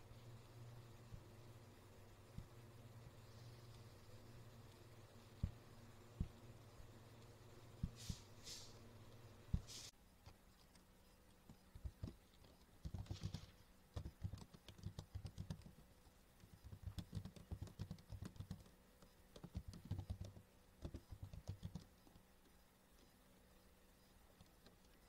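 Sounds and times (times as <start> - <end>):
typing on computer keyboard: 12.8 - 15.8, 16.6 - 22.2.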